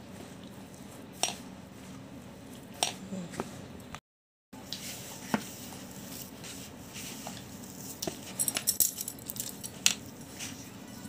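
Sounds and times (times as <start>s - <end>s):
hand rubbing flour in bowl: 4.7s - 8.4s.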